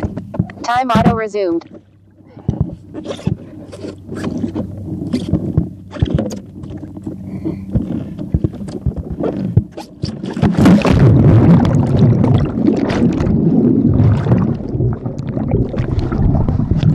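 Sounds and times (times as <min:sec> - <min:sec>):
underwater churning and bubbling: 0:00.0 - 0:16.9
splash into water: 0:10.2 - 0:16.9.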